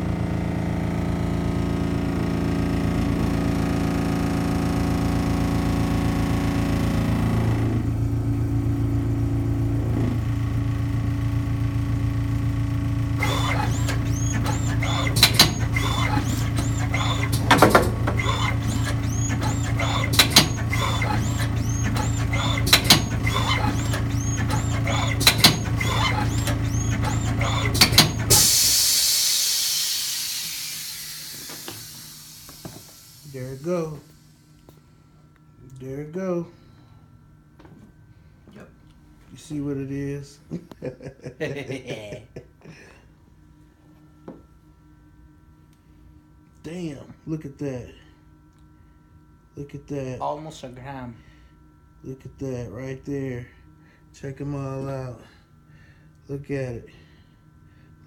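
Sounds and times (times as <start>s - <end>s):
machine motor hum: 0.0s - 35.5s.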